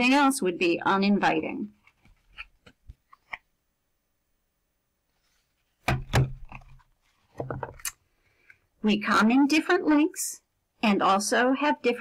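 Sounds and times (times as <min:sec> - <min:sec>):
thumps and rustling: 0:05.8 - 0:07.8
book handling taps and clicks: 0:05.8 - 0:07.9.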